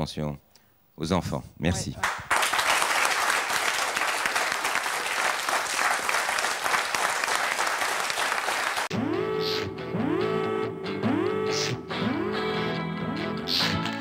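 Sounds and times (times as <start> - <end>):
studio audience applauding: 1.9 - 8.9
electric guitar theme music: 8.9 - 14.0.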